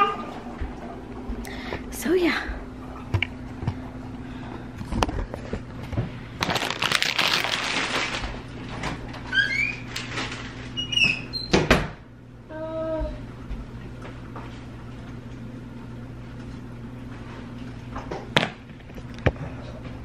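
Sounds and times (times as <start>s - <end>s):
rustling: 6.4s - 8.4s.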